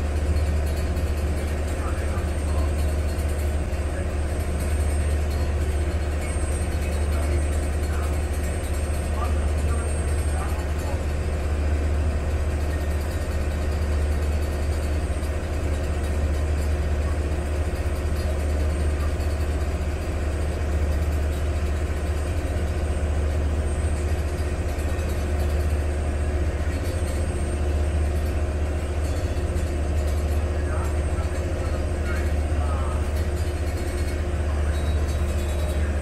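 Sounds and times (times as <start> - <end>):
ferry engine droning: 0.0 - 36.0.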